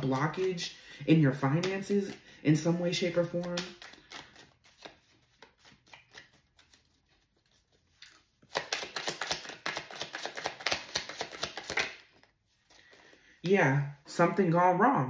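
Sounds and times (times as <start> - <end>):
cards being shuffled: 0.0 - 13.3.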